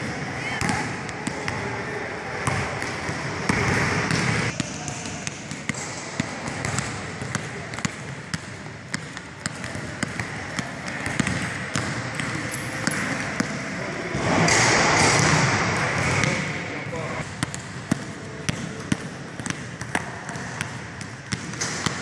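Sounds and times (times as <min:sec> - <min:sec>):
basketball dribbling on gym floor: 0:02.4 - 0:13.6, 0:17.2 - 0:22.0.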